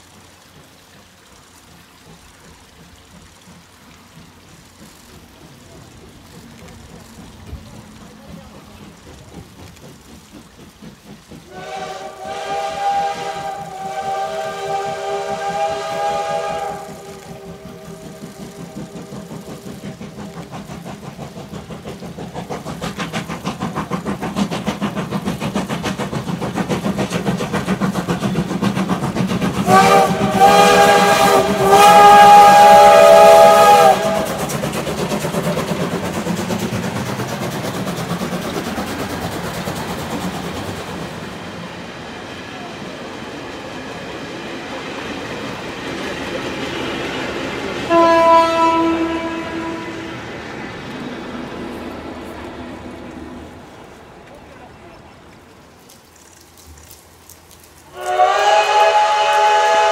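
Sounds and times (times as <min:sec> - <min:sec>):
train clattering: 0:00.0 - 0:56.0, 0:57.6 - 0:59.9
steam locomotive whistle: 0:11.5 - 0:19.8, 0:29.5 - 0:34.7, 0:47.7 - 0:50.4, 0:57.9 - 0:59.9.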